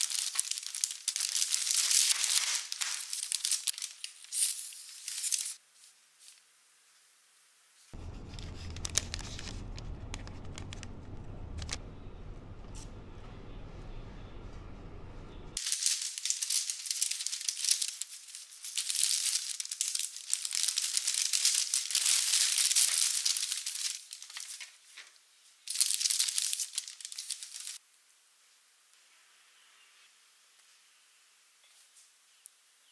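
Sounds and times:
baking paper rustling: 0.0s - 6.4s, 7.9s - 10.8s, 15.6s - 27.8s.

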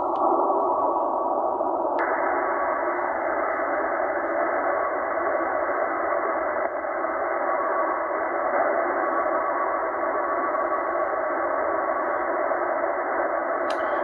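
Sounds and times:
radio static and hiss: 0.0s - 14.0s
weak data signal: 0.0s - 14.0s.

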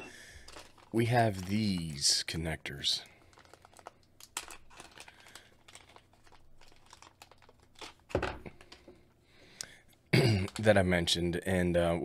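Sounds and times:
plastic bag crinkling: 0.1s - 9.0s, 10.3s - 10.8s.

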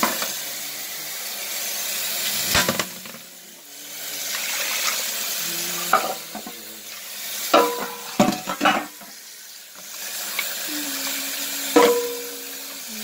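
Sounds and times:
tap water running into sink: 4.2s - 13.0s.

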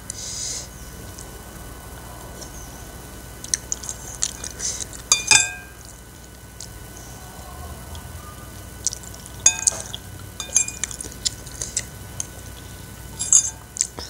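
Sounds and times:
mouth sounds of eating: 3.4s - 5.1s, 5.8s - 14.0s
spoon clinking on ceramic bowl: 5.1s - 5.8s, 9.4s - 11.0s, 13.2s - 13.6s.

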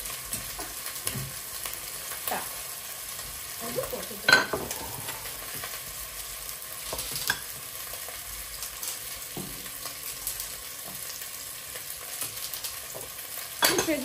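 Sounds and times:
steady hiss: 3.1s - 13.6s.

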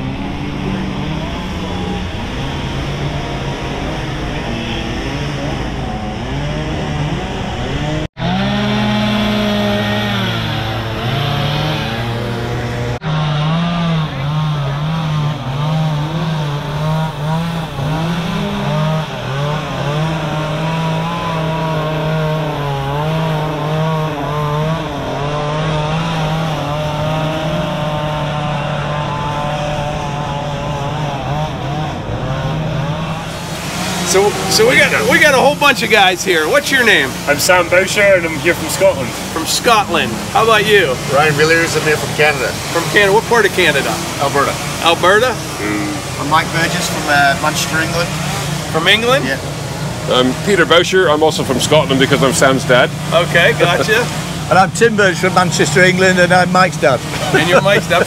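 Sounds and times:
chainsaws cutting wood: 0.0s - 58.0s.

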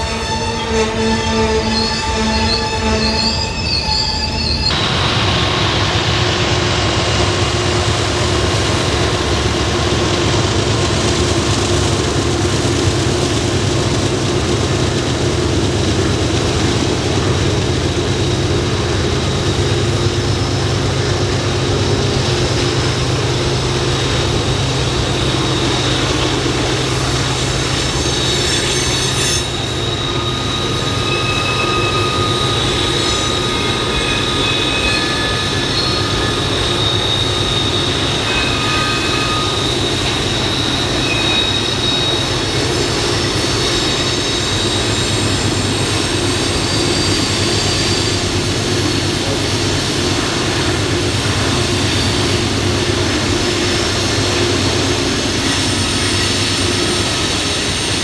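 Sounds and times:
high-pitched wheel squeal: 0.0s - 4.8s, 17.0s - 58.0s
train wheels rumbling on rail: 0.0s - 58.0s.

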